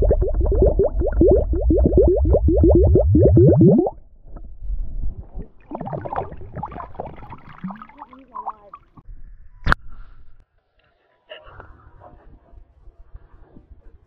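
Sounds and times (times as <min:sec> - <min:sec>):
underwater glugs of escaping air: 0:00.0 - 0:04.0, 0:05.3 - 0:08.6
water splashing and trickling: 0:05.3 - 0:09.0.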